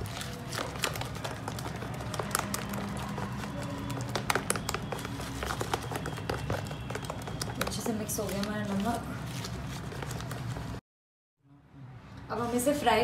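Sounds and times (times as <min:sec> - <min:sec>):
hand slapping batter in bowl: 0:00.0 - 0:08.8.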